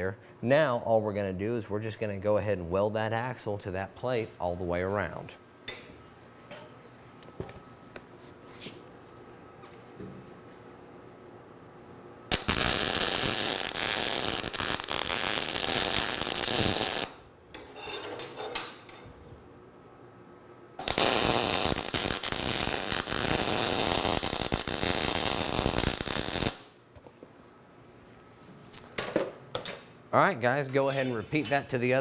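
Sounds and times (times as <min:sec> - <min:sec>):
welding arc crackling: 0:12.3 - 0:17.2, 0:20.8 - 0:26.7.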